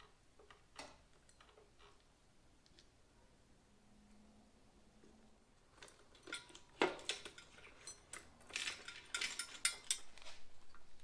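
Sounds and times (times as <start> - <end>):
metal tools clinking and clicking: 0.5 - 2.0, 5.7 - 10.4.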